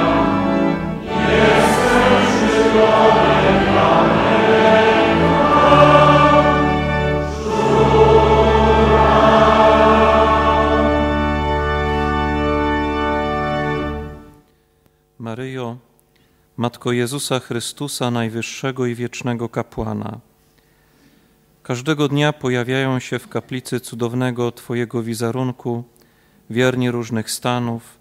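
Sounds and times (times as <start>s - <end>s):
men singing a hymn: 0.0s - 11.4s
organ: 0.0s - 14.4s.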